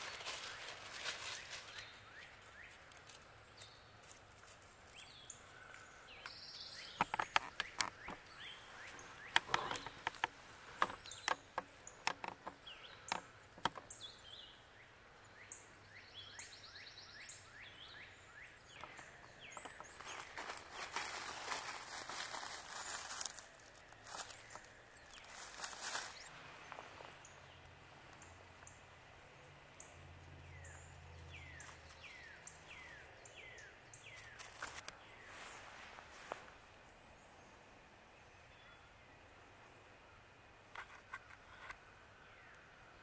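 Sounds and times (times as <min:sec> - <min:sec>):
footsteps crunching dry leaves: 0:00.0 - 0:05.8, 0:19.4 - 0:27.3, 0:34.1 - 0:36.6
birds calling falling notes: 0:04.9 - 0:14.3, 0:18.7 - 0:27.2
twigs snapping: 0:06.9 - 0:11.4, 0:18.7 - 0:26.8, 0:34.1 - 0:35.0.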